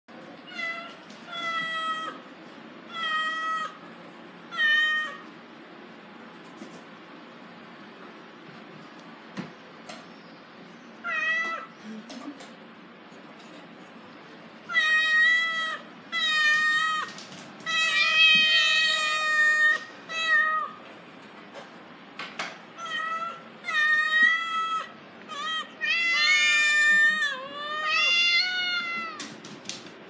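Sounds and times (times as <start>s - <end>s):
cat meowing: 14.7s - 20.8s, 22.8s - 29.3s.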